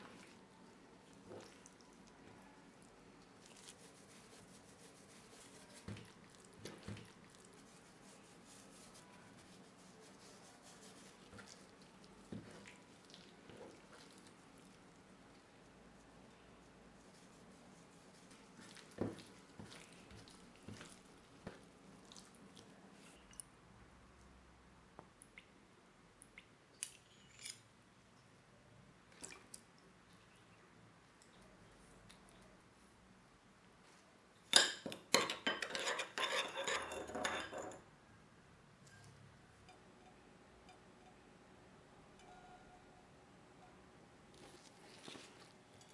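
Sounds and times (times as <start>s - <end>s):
wet squishing of raw chicken: 0.0s - 15.5s, 18.1s - 23.4s.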